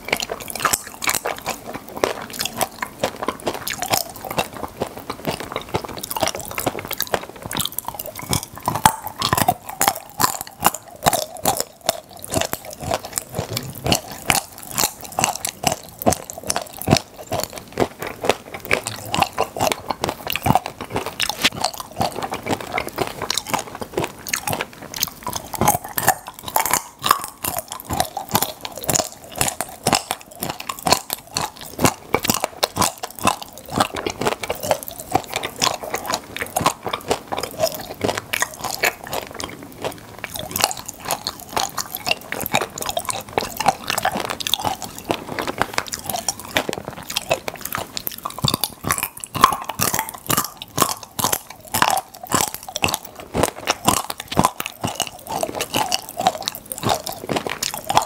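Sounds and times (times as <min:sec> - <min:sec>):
popping candy crackling: 0:00.0 - 0:58.0
wet chewing: 0:00.0 - 0:58.0.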